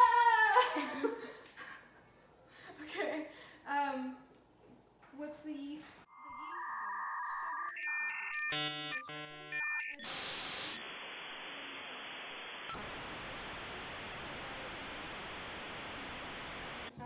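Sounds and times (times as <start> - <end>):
dial-up modem tones: 6.1 - 16.9
static hiss: 8.2 - 17.0.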